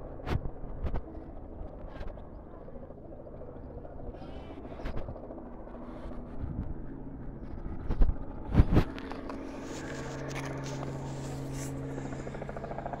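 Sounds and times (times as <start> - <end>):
low engine hum: 5.3 - 13.0.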